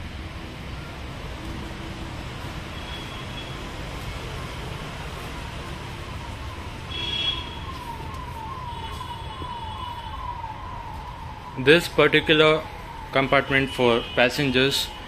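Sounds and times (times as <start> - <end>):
distant siren: 0.0 - 15.0
outdoor background noise: 0.0 - 15.0.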